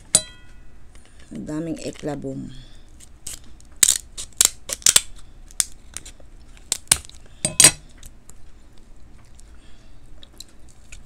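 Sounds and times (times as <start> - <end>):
shell cracking: 3.0 - 8.2.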